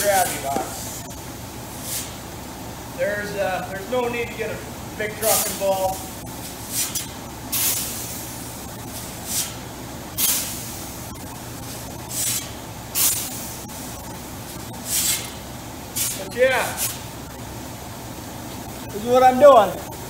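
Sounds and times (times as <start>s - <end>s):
steady low hum: 0.0s - 20.0s
grain shovel scooping wheat: 14.9s - 15.4s.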